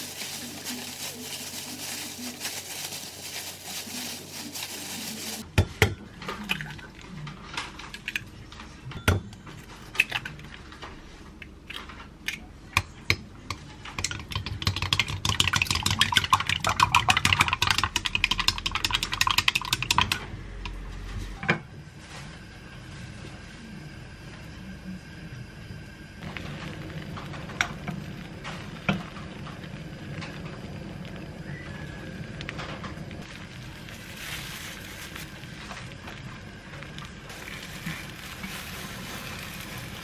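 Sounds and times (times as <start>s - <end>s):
plastic gloves rustling: 0.0s - 5.5s, 33.2s - 40.0s
chopsticks beating eggs in bowl: 13.1s - 20.2s.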